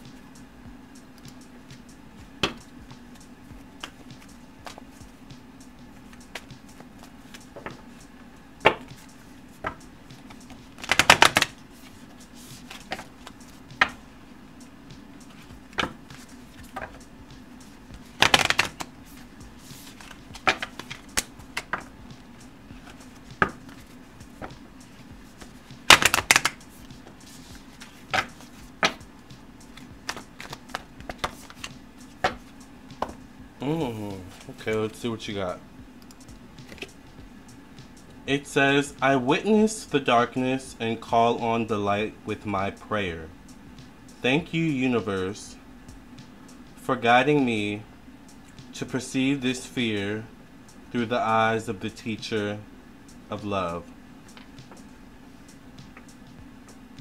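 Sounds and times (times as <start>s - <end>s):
faint steady hum: 0.0s - 57.0s
cards clicking and tapping: 2.4s - 3.2s, 3.8s - 4.9s, 5.8s - 8.0s, 8.6s - 14.0s, 15.2s - 17.0s, 17.6s - 33.2s, 36.0s - 37.0s
cards riffling: 8.7s - 14.0s, 15.2s - 29.0s, 29.6s - 33.2s, 36.0s - 37.0s.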